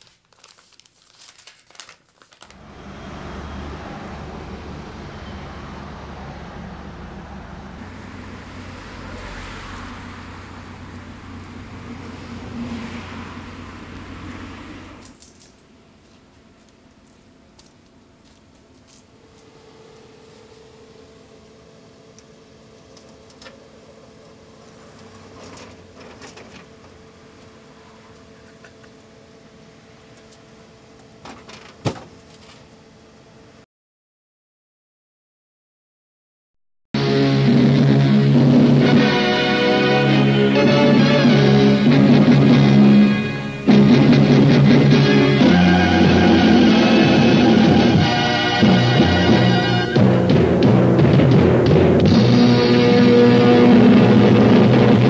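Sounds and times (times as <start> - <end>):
paper sheet rustling: 0.0 - 2.6
faint hum: 0.0 - 31.4
street noise with low rumble: 2.5 - 33.6, 37.0 - 55.0.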